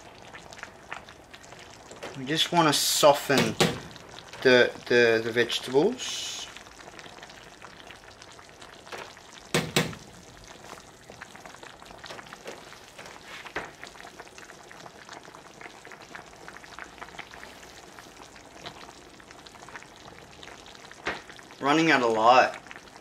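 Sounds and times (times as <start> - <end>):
soup simmering and bubbling: 0.0 - 23.0
short knock: 9.6 - 10.0.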